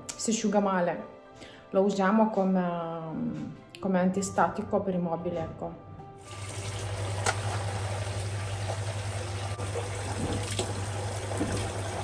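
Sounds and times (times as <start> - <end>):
tap water filling plastic bucket: 6.2 - 12.0.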